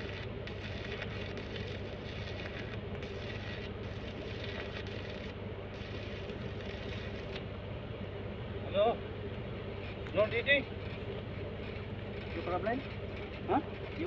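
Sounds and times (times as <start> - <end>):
welding arc crackling: 0.0 - 7.5, 9.8 - 14.0
low hum: 0.0 - 14.0.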